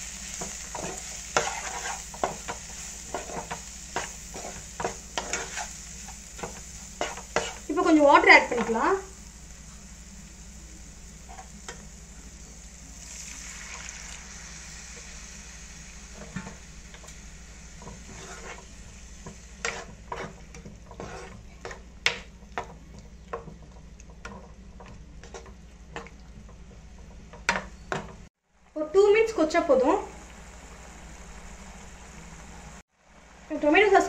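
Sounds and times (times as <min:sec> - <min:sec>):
water sizzling in hot pan: 0:00.0 - 0:23.4, 0:28.9 - 0:34.0
plastic spatula scraping pan: 0:17.8 - 0:18.7, 0:19.6 - 0:21.8.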